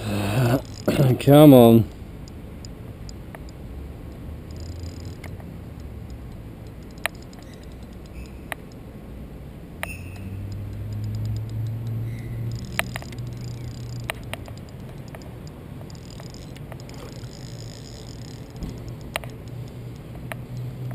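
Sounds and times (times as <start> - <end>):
fishing reel whirring: 0.5 - 0.9, 4.5 - 5.3, 10.9 - 15.2, 15.9 - 20.7
reel clicks: 0.6 - 0.9, 2.2 - 8.8, 9.8 - 20.9.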